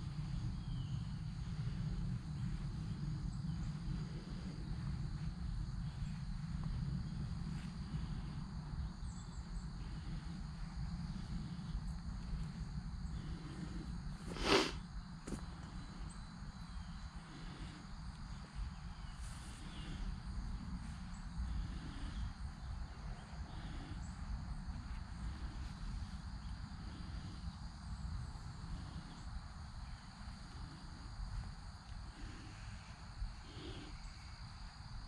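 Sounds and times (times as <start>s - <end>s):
low rumble: 0.0s - 14.3s
insects chirring: 0.0s - 35.0s.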